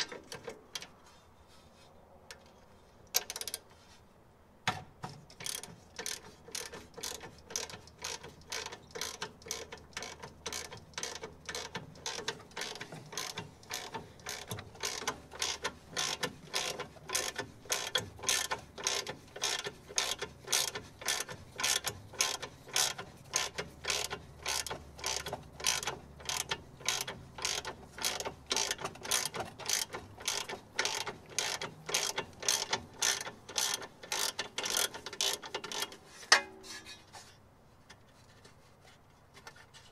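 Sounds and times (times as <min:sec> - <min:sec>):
ratchet wrench clicking: 0:03.1 - 0:03.6, 0:05.4 - 0:36.0.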